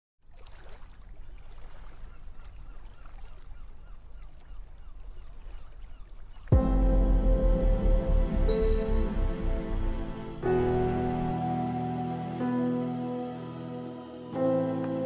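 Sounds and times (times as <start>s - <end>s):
low steady rumble: 6.6s - 11.3s
music track: 6.6s - 15.0s.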